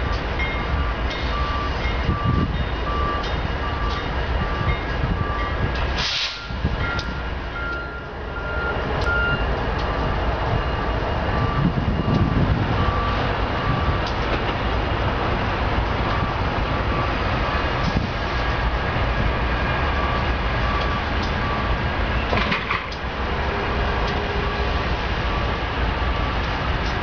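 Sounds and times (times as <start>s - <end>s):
diesel locomotives rumbling: 0.0s - 27.0s
reversing beeper: 0.5s - 14.1s, 18.8s - 22.5s
rattle of clanks: 22.3s - 23.0s.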